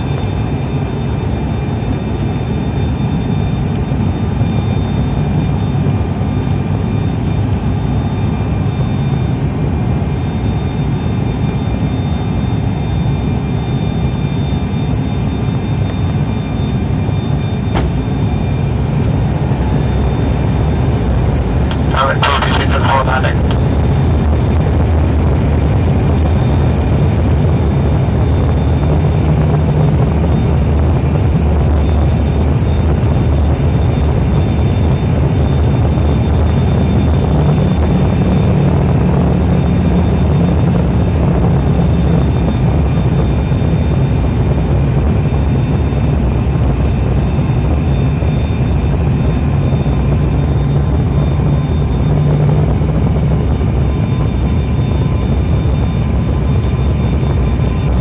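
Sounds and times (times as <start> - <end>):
turboprop engine drone: 0.0 - 58.0
faint high whine: 10.0 - 23.7, 45.1 - 58.0.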